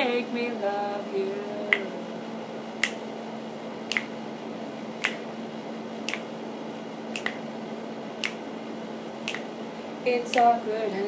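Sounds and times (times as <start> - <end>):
steady low hum: 0.0 - 11.0
fingers snapping: 1.7 - 1.9, 2.8 - 3.0, 3.8 - 4.2, 5.0 - 5.3, 6.0 - 6.3, 7.1 - 7.5, 8.2 - 8.4, 9.2 - 9.5, 10.3 - 10.6.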